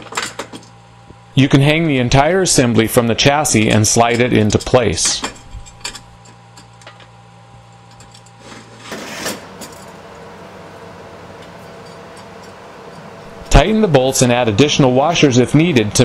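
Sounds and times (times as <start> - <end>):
low steady hum: 0.0 - 16.0
metal bracket and bolts clinking: 4.0 - 7.1
metal scrape: 8.3 - 9.6.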